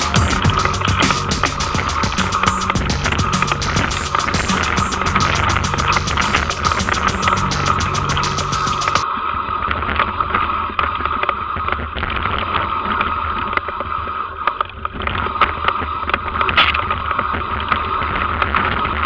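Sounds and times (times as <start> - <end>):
background music: 0.0 - 9.0.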